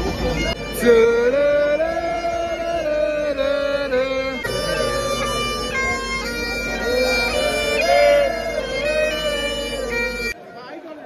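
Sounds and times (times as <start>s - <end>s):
bagpipes playing: 0.0s - 10.4s.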